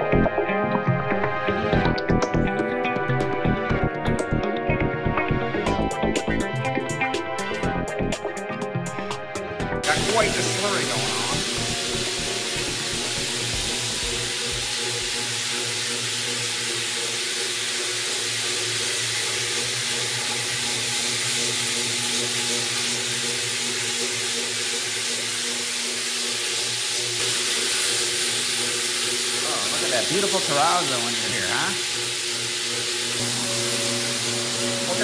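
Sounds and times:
floor grinding machine running: 0:09.8 - 0:35.0.

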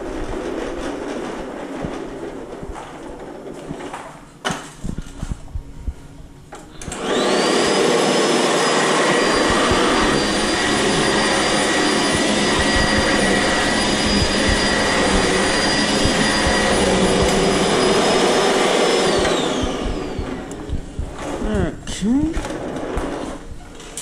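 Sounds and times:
vacuum cleaner motor whine: 0:06.6 - 0:21.5, 0:22.3 - 0:24.0
low rumble: 0:09.2 - 0:21.5.

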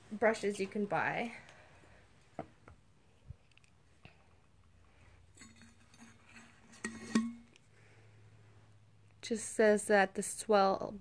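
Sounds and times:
low steady hum: 0:00.0 - 0:11.0
taps and clinks on steel bottle: 0:06.7 - 0:07.5.

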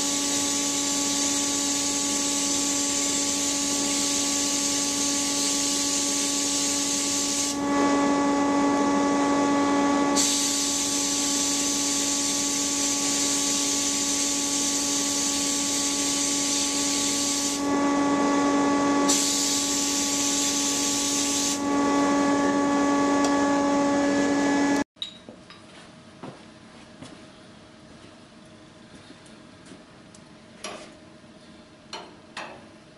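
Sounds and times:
sandblaster hissing: 0:00.0 - 0:24.8
steady hum: 0:00.0 - 0:24.9.

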